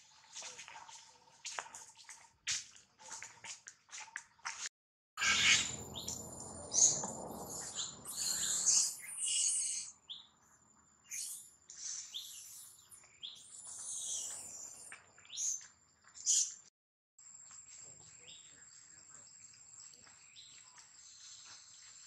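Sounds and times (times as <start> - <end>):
high-pitched chirping and squealing: 5.2 - 10.0, 11.1 - 12.8, 13.4 - 15.6.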